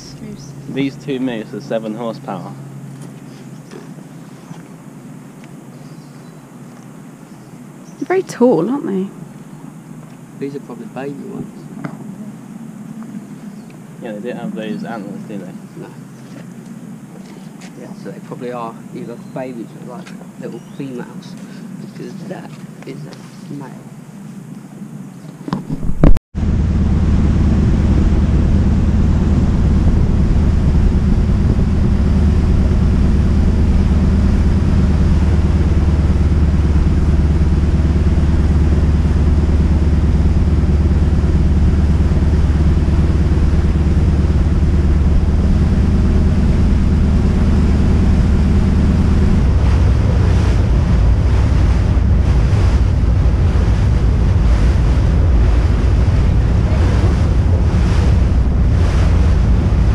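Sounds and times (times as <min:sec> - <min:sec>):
ferry engine humming: 0:00.0 - 0:59.9
wind gusting on microphone: 0:20.3 - 0:59.9
water rushing past hull: 0:25.8 - 0:59.9.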